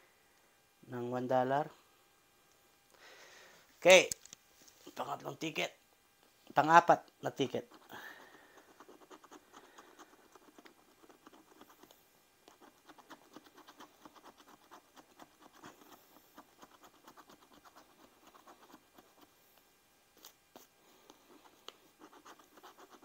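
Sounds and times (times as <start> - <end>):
scratch card scraping: 7.6 - 19.4, 20.2 - 23.0.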